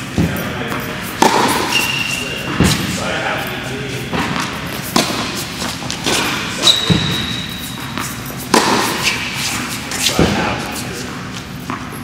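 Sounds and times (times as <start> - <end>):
racket hitting tennis ball: 0.0 - 3.0, 4.1 - 12.0
tennis ball bouncing on court: 0.2 - 2.9, 4.1 - 10.4, 11.6 - 12.0.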